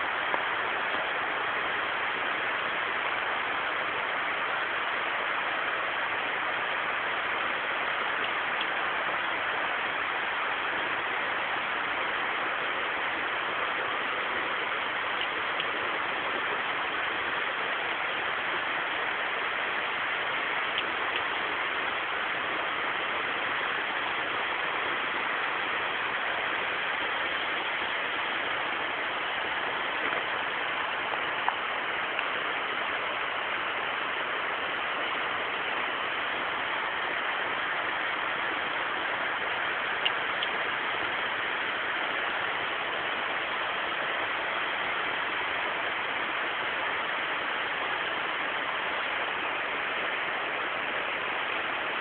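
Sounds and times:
steady hiss: 0.0 - 52.0
faint clicks: 8.2 - 8.8, 39.9 - 41.2.

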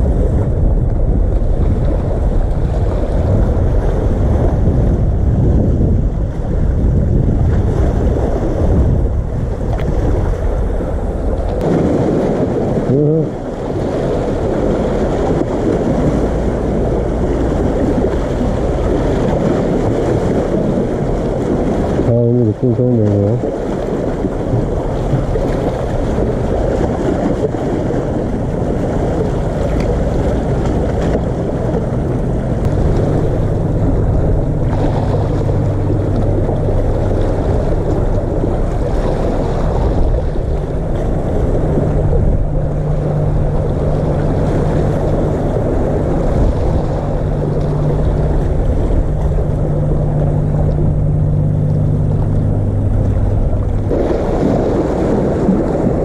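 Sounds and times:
low steady hum: 0.0 - 56.0
waves splashing on concrete: 0.0 - 56.0.

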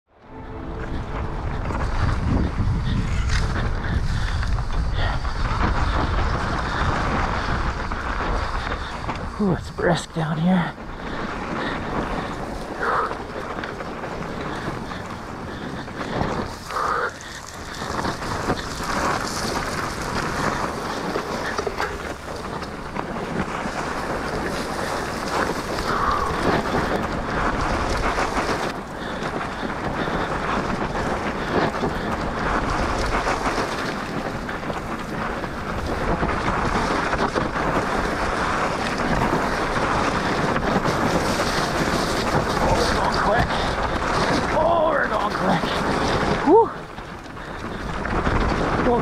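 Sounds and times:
wind noise on microphone: 0.2 - 49.0
bike rattling: 0.4 - 49.0
bike tyres scraping through dirt: 0.5 - 49.0.

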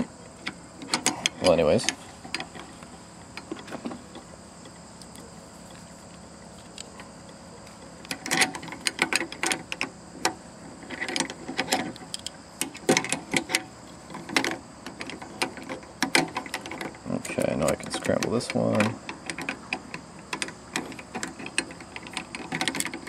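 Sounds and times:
padlocks clicking and rattling: 6.6 - 23.0.

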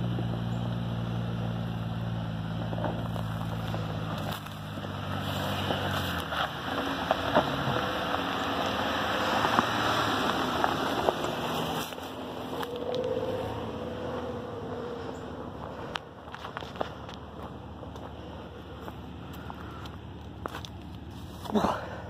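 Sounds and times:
engine running at low speed: 0.0 - 22.0
tyres grinding over rock and gravel: 1.9 - 13.9.

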